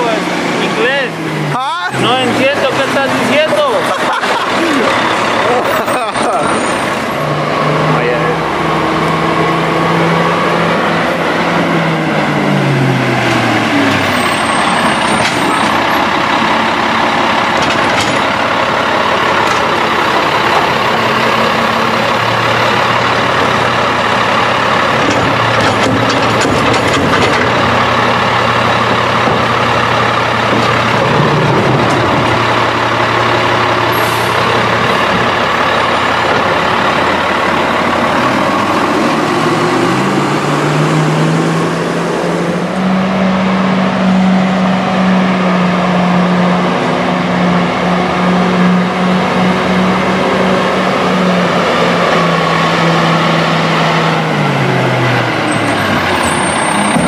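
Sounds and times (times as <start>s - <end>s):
garbage truck engine: 0.0s - 57.0s
cart knocks: 24.9s - 27.8s.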